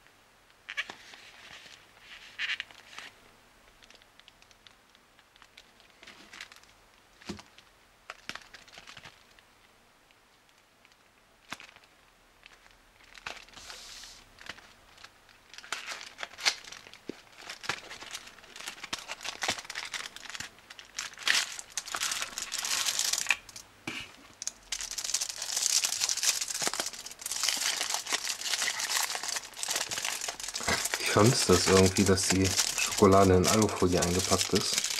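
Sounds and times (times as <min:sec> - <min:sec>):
foil crinkling: 0:03.8 - 0:09.4, 0:11.4 - 0:23.6, 0:24.4 - 0:34.9
cardboard tearing: 0:24.8 - 0:34.9.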